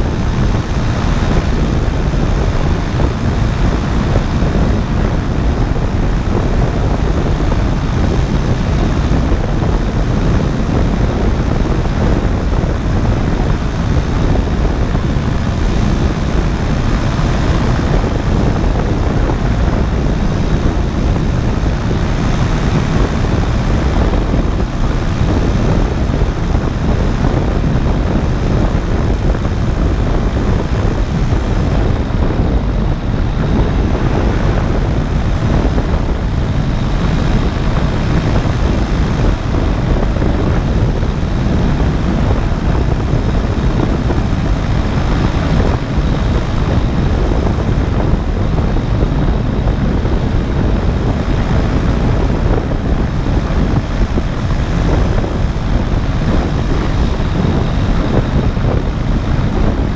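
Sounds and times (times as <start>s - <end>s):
air rushing on microphone: 0.0s - 59.9s
paramotor engine droning: 0.0s - 59.9s.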